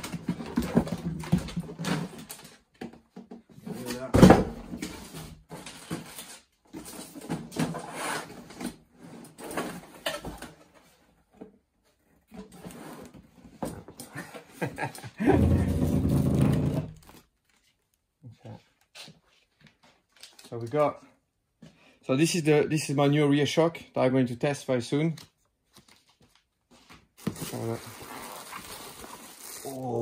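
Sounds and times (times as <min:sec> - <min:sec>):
cardboard boxes rustling and scraping: 0:04.7 - 0:14.0.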